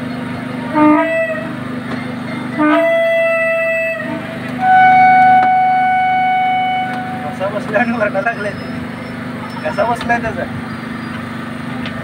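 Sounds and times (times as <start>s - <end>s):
engine hum: 0.0s - 12.0s
horn blasts: 0.6s - 1.6s, 2.5s - 8.9s.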